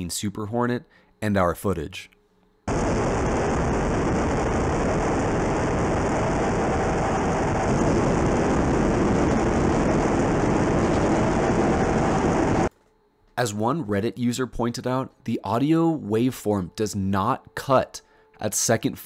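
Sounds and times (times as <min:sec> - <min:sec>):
faint high whine: 0:00.0 - 0:19.0
jet engine and airflow rush: 0:02.7 - 0:12.7.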